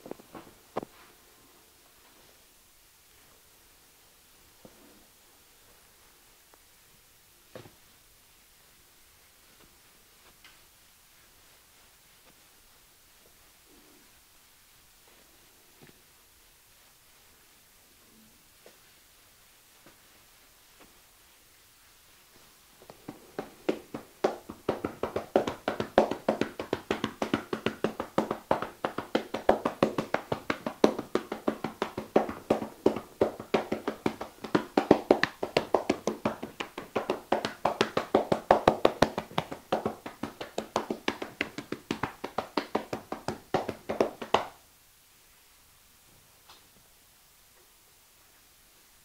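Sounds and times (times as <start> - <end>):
hands slapping body in massage: 22.4 - 44.6.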